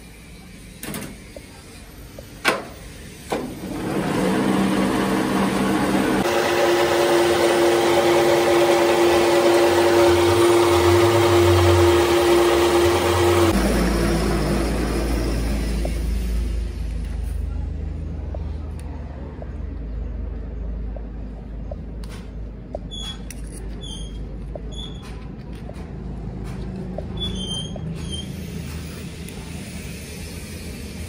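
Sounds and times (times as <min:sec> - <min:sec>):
metal lathe whining: 0:03.2 - 0:16.9.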